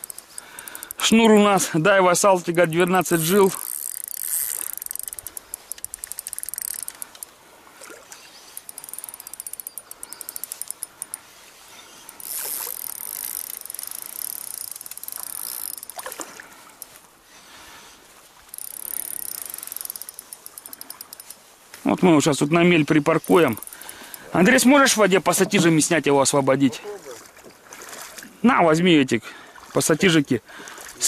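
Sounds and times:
fishing reel clicking rapidly: 0.0s - 7.3s, 8.5s - 11.2s, 12.1s - 16.2s, 18.5s - 21.4s, 23.0s - 24.7s.

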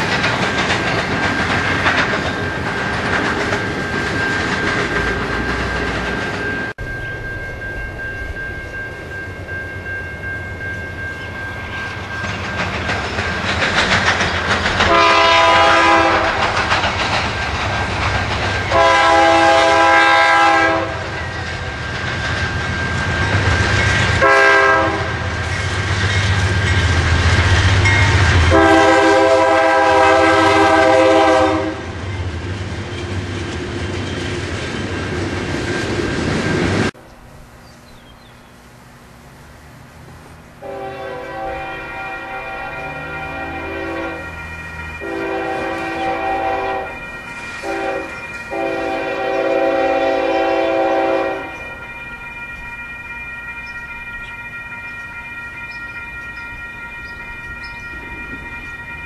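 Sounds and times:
wheels clattering on rails: 0.0s - 38.4s, 50.8s - 59.0s
locomotive engine rumble: 0.0s - 59.0s
locomotive air horn: 14.8s - 16.5s, 18.7s - 21.2s, 24.2s - 25.3s, 28.4s - 32.0s, 40.6s - 51.8s.

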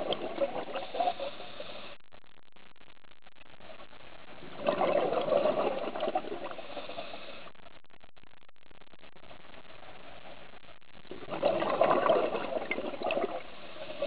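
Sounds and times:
faint underwater hiss: 0.0s - 2.2s, 3.6s - 7.8s, 9.5s - 14.0s
diver exhaling bubbles: 4.6s - 7.2s, 11.1s - 14.0s.

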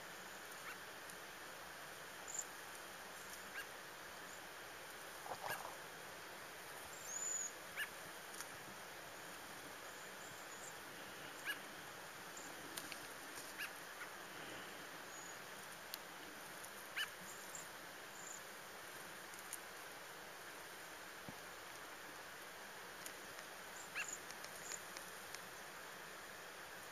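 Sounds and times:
faint steady hiss: 0.0s - 26.9s.

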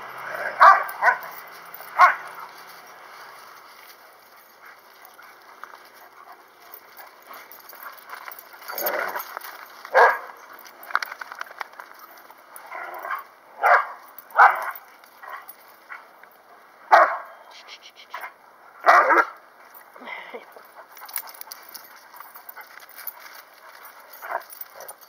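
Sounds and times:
dogs barking: 0.1s - 2.7s, 4.7s - 10.7s, 12.6s - 15.6s, 16.9s - 17.5s, 18.1s - 19.4s.

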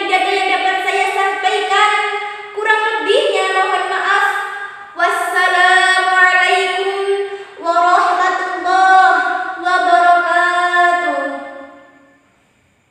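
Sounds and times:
woman singing unaccompanied: 5.0s - 11.8s.

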